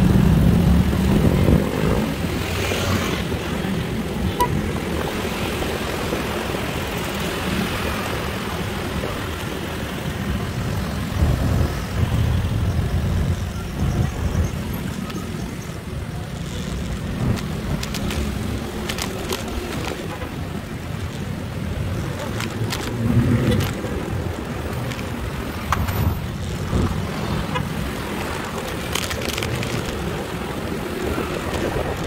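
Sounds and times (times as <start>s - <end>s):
road noise: 0.0s - 32.0s
wind rushing over microphone: 0.0s - 32.0s.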